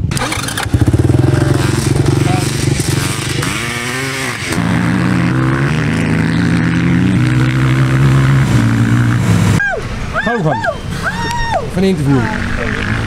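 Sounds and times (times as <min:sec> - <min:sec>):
vehicle engine running: 0:00.0 - 0:10.1.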